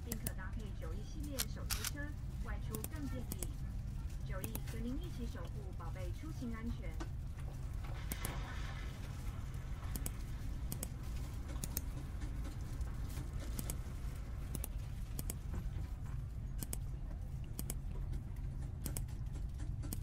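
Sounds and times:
steady low hum: 0.0s - 20.0s
computer mouse clicking: 9.9s - 10.9s, 11.5s - 13.8s, 14.5s - 15.4s, 16.6s - 20.0s.

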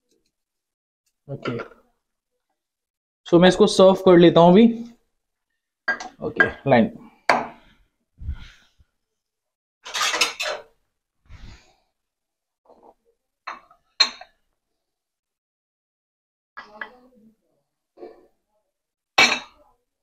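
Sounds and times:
bowl clattering scrape: 9.8s - 10.8s
dishes thudding on counter: 19.2s - 19.6s.

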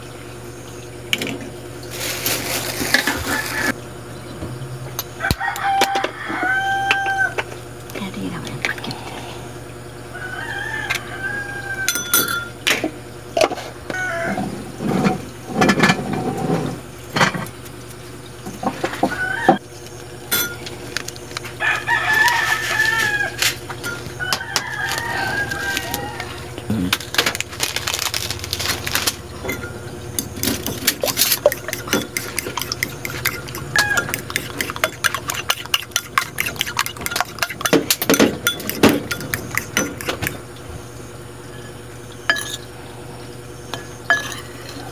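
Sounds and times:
rooster crowing: 3.0s - 3.8s, 5.1s - 7.4s, 10.0s - 12.3s, 13.9s - 14.6s, 18.8s - 19.6s, 21.5s - 26.7s, 32.6s - 35.2s
chickens clucking: 22.0s - 27.0s, 28.6s - 40.7s
fork beating eggs clinking: 29.4s - 40.4s
eggs cracked into ceramic bowl: 30.2s - 40.4s.

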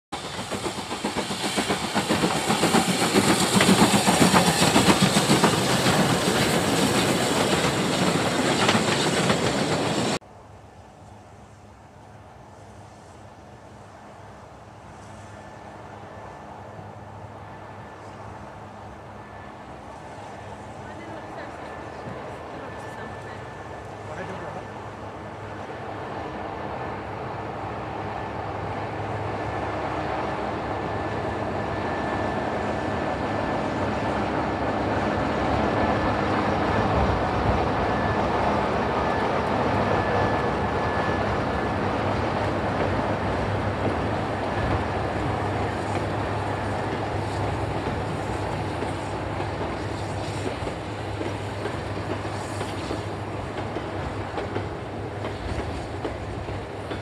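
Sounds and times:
diesel locomotive engine drone: 0.1s - 57.0s.

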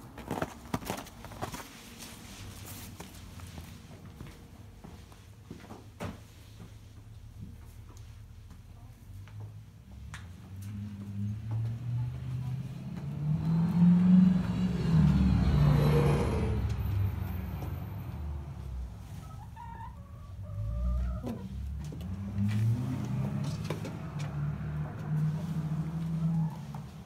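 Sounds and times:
chicken calling: 19.2s - 21.6s.

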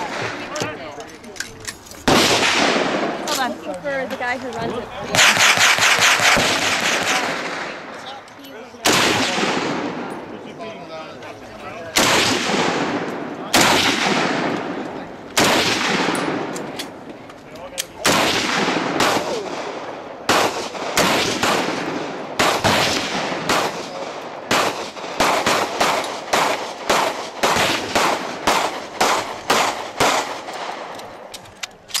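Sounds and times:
rifle shots echoing: 2.0s - 3.4s, 5.1s - 8.0s, 8.8s - 10.3s, 11.9s - 17.1s, 18.0s - 31.2s.

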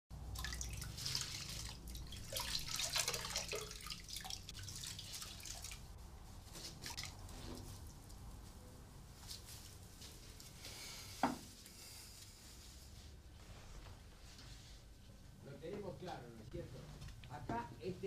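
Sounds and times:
clothes sloshed in water: 0.2s - 8.0s
tap running into basin: 0.3s - 5.8s.

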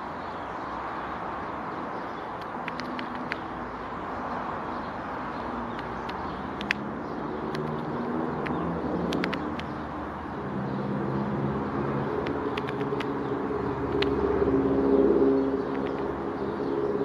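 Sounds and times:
vehicle engine drone: 0.0s - 17.0s
faint sharp clicks: 2.4s - 3.5s, 5.7s - 6.8s, 7.5s - 9.8s, 12.2s - 13.1s.

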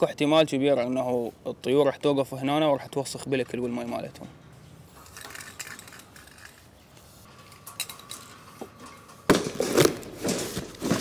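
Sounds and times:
cardboard and plastic rustling: 9.3s - 11.0s.

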